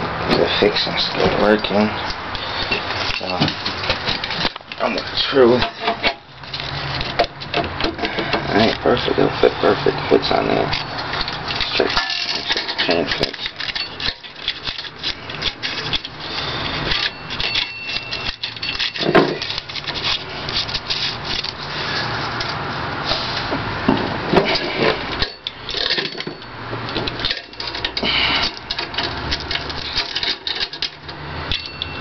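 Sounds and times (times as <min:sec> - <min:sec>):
metal chain rattling and scraping: 0:00.0 - 0:23.2, 0:23.9 - 0:32.0.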